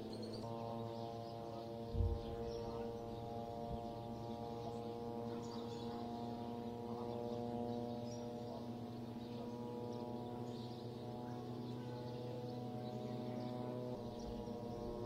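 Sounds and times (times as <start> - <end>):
droning hum of held tones: 0.0 - 15.0.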